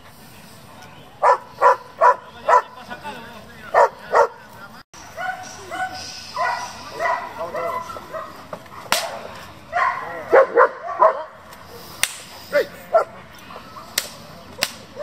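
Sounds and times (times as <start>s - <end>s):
dog barking: 1.2s - 2.8s, 3.7s - 4.4s, 5.2s - 11.4s, 12.6s - 13.1s
sharp cracks: 8.9s - 9.3s, 11.5s - 12.4s, 13.9s - 14.9s.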